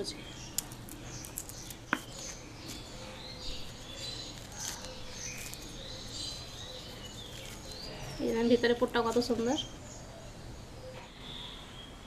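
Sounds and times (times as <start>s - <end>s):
birds chirping: 0.0s - 12.0s
crust crackling and snapping: 0.4s - 8.2s.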